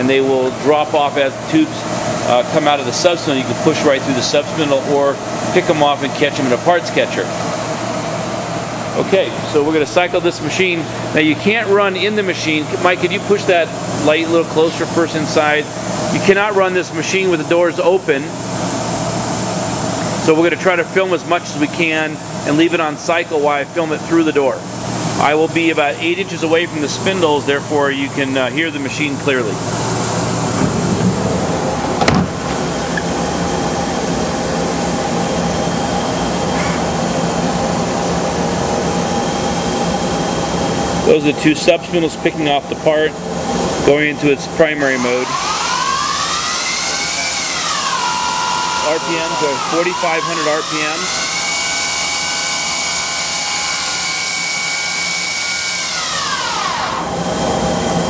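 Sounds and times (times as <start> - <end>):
machine spindle whir: 0.4 - 58.0
coolant spray hiss: 9.0 - 33.5
machine clunk: 30.6 - 33.1.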